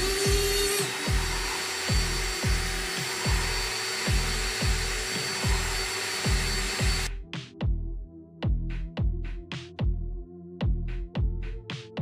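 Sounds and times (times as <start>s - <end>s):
electric drill running: 0.0s - 7.1s
background music bass beat: 0.0s - 12.0s.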